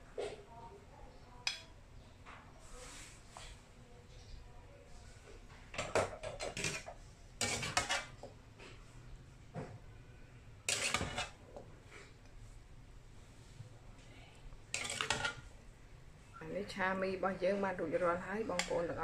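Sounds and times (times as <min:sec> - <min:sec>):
utensils clinking against dishes: 0:05.8 - 0:08.1.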